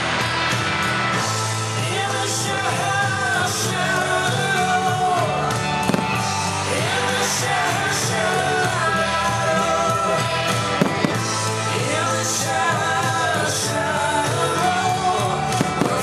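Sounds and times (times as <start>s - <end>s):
pop music instruments: 0.0s - 16.0s
person singing: 1.2s - 16.0s
sharp cracks: 5.8s - 6.3s, 10.8s - 11.3s, 15.6s - 16.0s.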